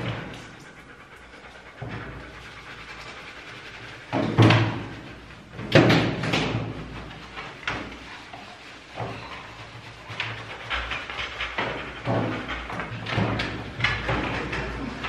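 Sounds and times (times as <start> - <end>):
dog banging against steel tub: 4.1 - 8.0, 10.8 - 15.0.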